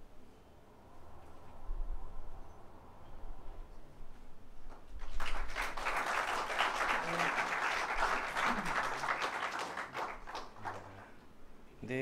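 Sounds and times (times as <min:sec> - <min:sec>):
audience applauding: 0:05.0 - 0:11.2.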